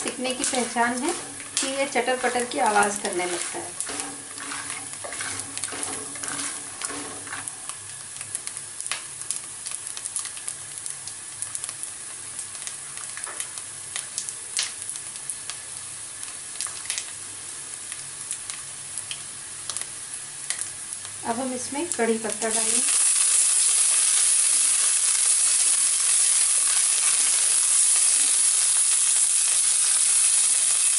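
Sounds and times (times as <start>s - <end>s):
spatula stirring: 0.0s - 7.6s
peanuts sizzling and popping in oil: 0.0s - 30.9s.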